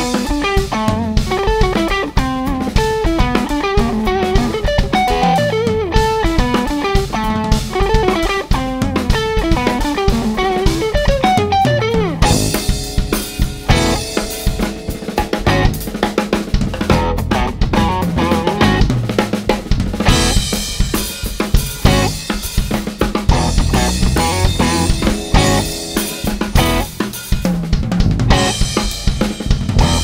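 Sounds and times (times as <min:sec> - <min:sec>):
electric bass: 0:00.0 - 0:21.0, 0:21.8 - 0:22.4, 0:23.2 - 0:30.0
electric guitar lead with pitch bends: 0:00.0 - 0:21.0, 0:21.8 - 0:22.4, 0:23.2 - 0:30.0
drum kit: 0:00.0 - 0:30.0
keyboard: 0:09.8 - 0:20.9, 0:23.3 - 0:30.0.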